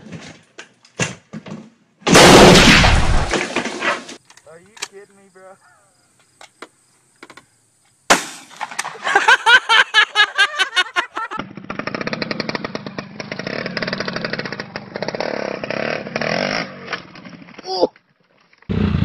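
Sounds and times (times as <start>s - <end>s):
shotgun bang: 2.1s - 4.1s, 8.1s - 8.6s
dirt bike engine buzzing: 11.4s - 17.5s, 18.7s - 19.0s.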